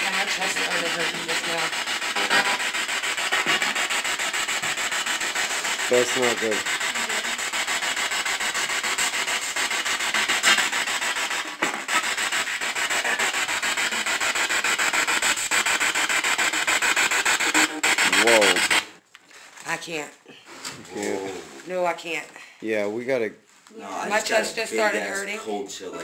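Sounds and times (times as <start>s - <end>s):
chopped radio static: 0.0s - 7.4s, 10.0s - 18.9s.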